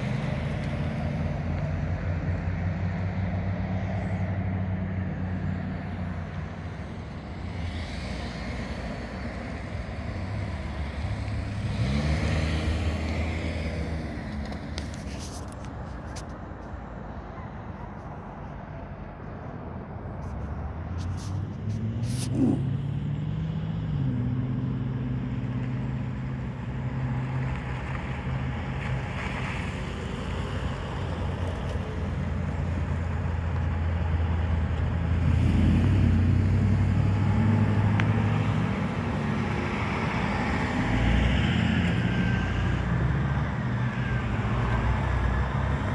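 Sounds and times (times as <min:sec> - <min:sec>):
vehicle engines running: 0:00.0 - 0:45.9
tyre noise on pavement: 0:08.8 - 0:22.8.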